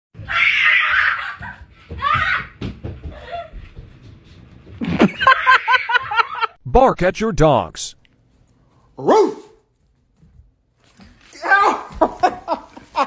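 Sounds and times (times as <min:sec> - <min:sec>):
person laughing: 0:04.8 - 0:06.6, 0:11.8 - 0:13.0
person speaking: 0:06.6 - 0:08.1.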